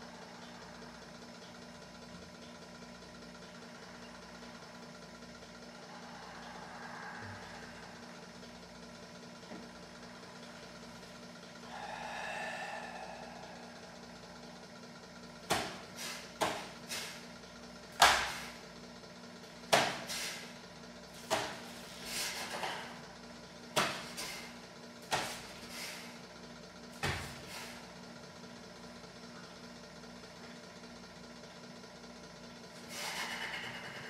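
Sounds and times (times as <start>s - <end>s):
sharp slaps and thumps: 15.5s - 15.8s, 16.4s - 17.1s, 18.0s - 18.4s, 19.7s - 20.1s, 21.2s - 21.6s, 23.8s - 24.3s, 25.1s - 25.4s.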